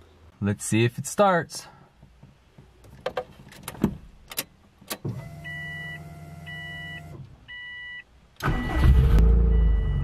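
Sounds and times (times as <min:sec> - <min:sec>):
dashboard warning chime: 0:05.2 - 0:08.0.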